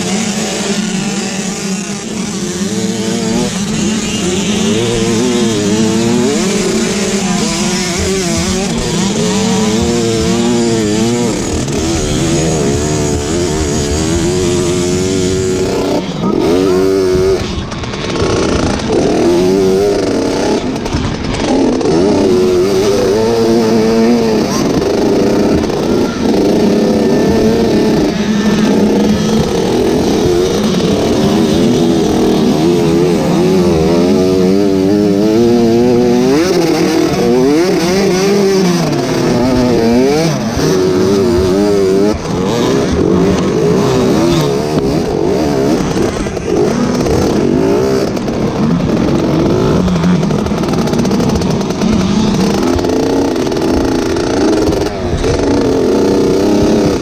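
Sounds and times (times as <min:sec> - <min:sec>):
dirt bike engine revving: 0:00.0 - 0:57.0.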